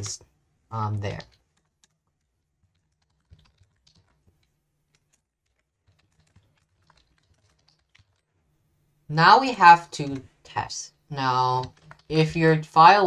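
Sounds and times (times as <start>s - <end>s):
faint computer keyboard typing: 1.0s - 8.4s, 11.2s - 12.3s.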